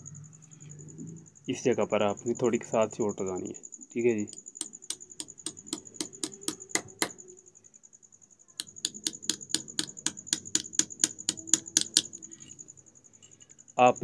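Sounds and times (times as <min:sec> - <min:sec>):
small hammer tapping steel pin: 0:04.3 - 0:07.2, 0:08.6 - 0:12.2.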